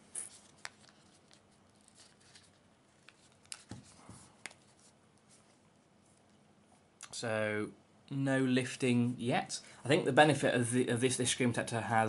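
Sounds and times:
soft rubbing of phone case: 0.0 - 6.9.

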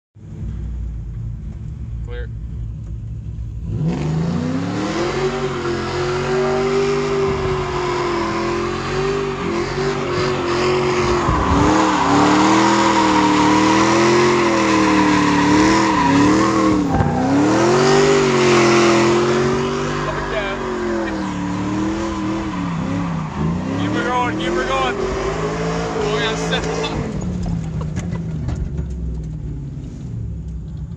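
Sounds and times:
truck engine revving hard: 3.6 - 27.6
tyres squealing: 9.3 - 25.0.

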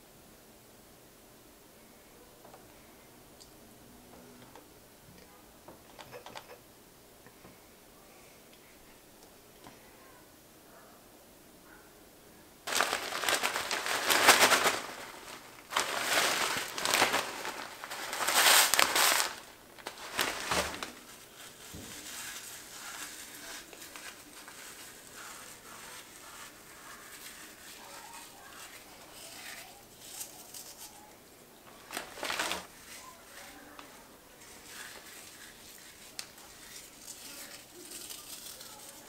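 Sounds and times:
crackers crushed by hand: 12.7 - 25.3, 31.7 - 32.7, 36.0 - 39.0
crumbs sprinkled crackling: 12.7 - 39.0.

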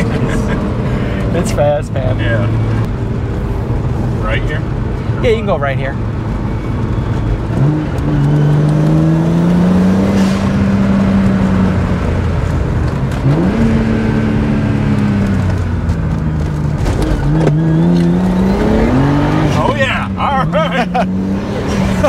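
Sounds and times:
car engine accelerating hard: 0.0 - 22.0.

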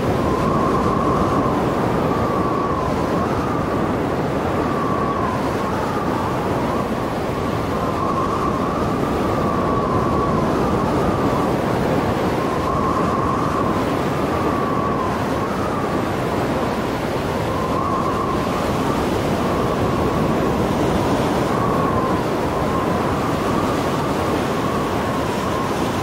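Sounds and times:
heavy surf: 0.0 - 26.0
whistling storm wind: 0.0 - 26.0.

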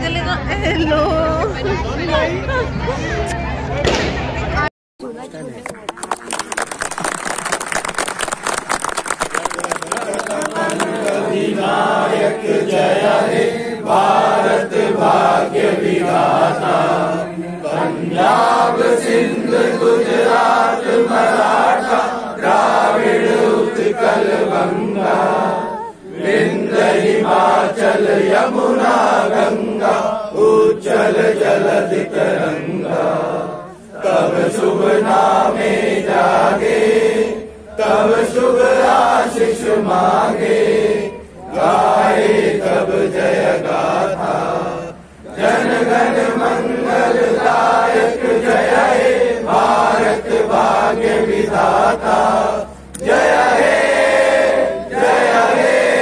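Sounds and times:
group singing in unison: 10.2 - 56.0.

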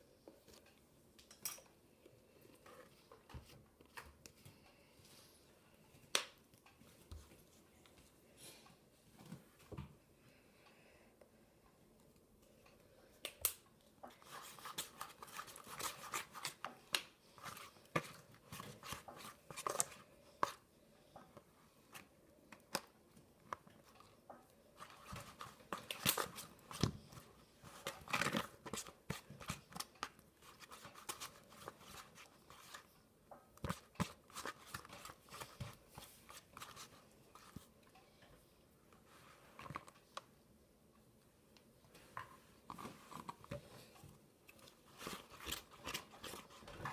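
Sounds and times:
spoon stirring slime in bowl: 14.1 - 20.7, 23.5 - 37.7, 42.2 - 46.9.

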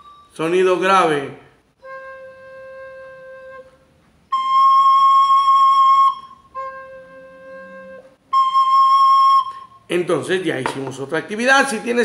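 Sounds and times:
recorder playing held notes: 0.0 - 0.4, 1.8 - 9.8.

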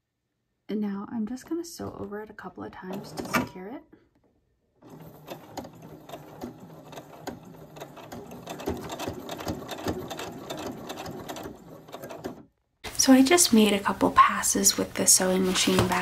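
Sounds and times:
electric sewing machine stitching: 2.9 - 3.5, 4.8 - 12.5.

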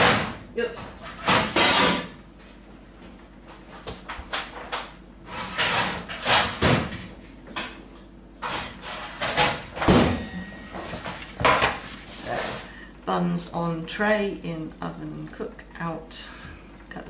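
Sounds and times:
cupboards and drawers opened and shut: 4.2 - 7.1.

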